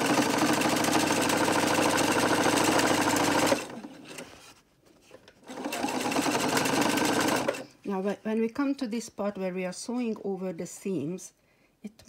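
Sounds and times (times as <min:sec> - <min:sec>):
sewing machine stitching: 0:00.0 - 0:04.5, 0:05.4 - 0:07.7.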